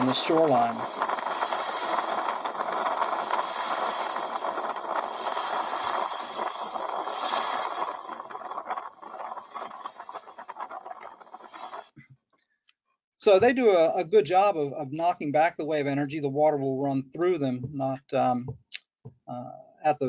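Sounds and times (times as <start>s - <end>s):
waves breaking: 0.0s - 12.0s
wind: 0.0s - 20.0s.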